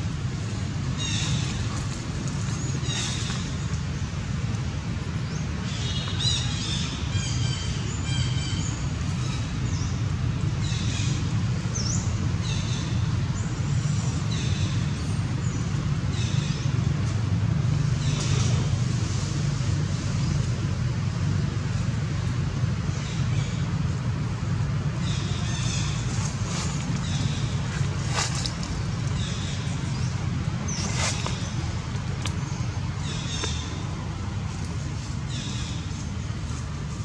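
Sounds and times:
steady low rumble: 0:00.0 - 0:37.0
birds chirping: 0:22.9 - 0:37.0.

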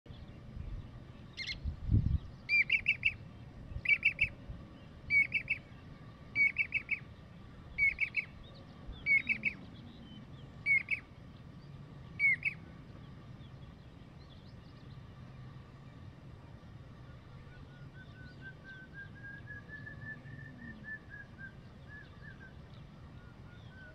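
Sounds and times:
cuckoo calling: 0:02.5 - 0:03.2, 0:03.8 - 0:04.4, 0:05.1 - 0:05.7, 0:06.3 - 0:07.1, 0:07.7 - 0:08.4, 0:09.0 - 0:11.1, 0:12.2 - 0:12.7, 0:17.4 - 0:23.9.

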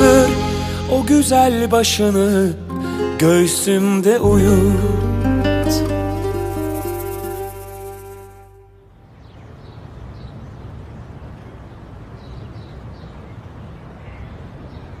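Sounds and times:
song last note: 0:00.0 - 0:03.4, 0:04.2 - 0:08.9.

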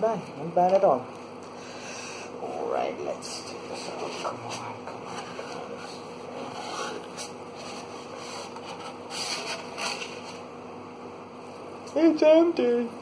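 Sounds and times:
cardboard and paper rustling: 0:04.0 - 0:10.4.

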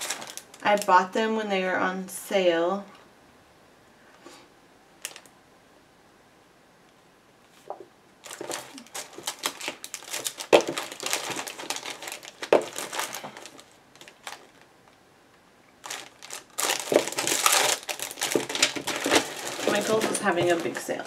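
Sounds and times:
sticker packs crinkling: 0:00.0 - 0:01.0, 0:08.2 - 0:14.7, 0:15.8 - 0:21.0.

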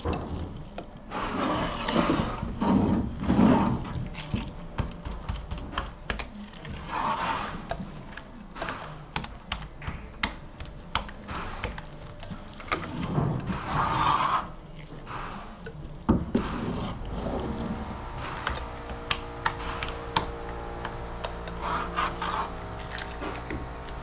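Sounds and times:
roller scrubbing: 0:01.0 - 0:04.6, 0:06.8 - 0:08.0, 0:12.9 - 0:15.6, 0:16.2 - 0:24.0.

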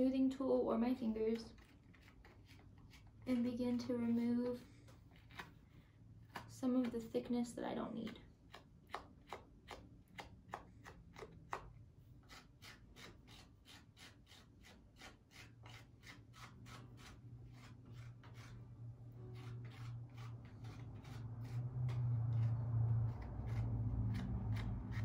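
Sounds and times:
fingers rubbing clay: 0:08.0 - 0:25.0
low hum: 0:17.1 - 0:25.0.

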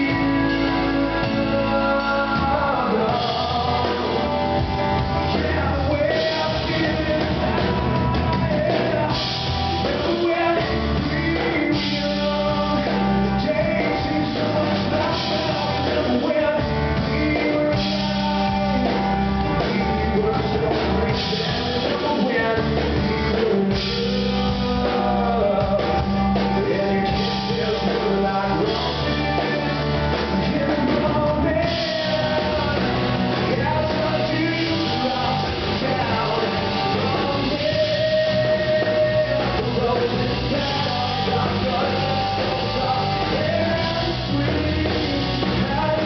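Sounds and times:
man singing: 0:00.0 - 0:46.0
second guitar playing: 0:00.0 - 0:46.0.

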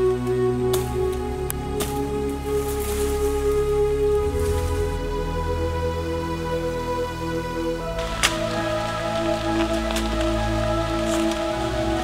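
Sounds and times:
music of sustained chords: 0:00.0 - 0:12.0
rain-like hiss: 0:07.7 - 0:12.0.

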